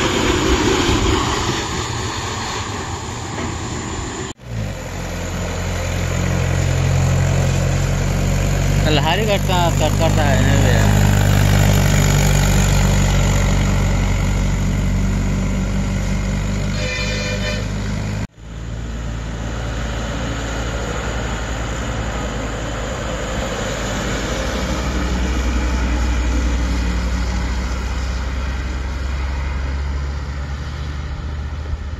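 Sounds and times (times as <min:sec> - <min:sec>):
tractor diesel engine labouring: 0:00.0 - 0:31.7
bus diesel engine climbing: 0:00.0 - 0:31.9
vehicle horn toot: 0:16.7 - 0:17.9.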